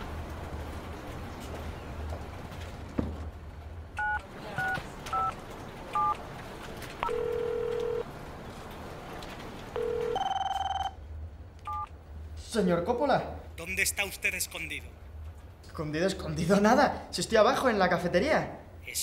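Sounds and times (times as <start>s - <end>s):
phone keypad tones: 4.0s - 5.4s, 7.0s - 8.0s, 9.8s - 11.0s, 11.7s - 11.9s
phone ringing tone: 7.0s - 8.0s, 9.8s - 11.0s.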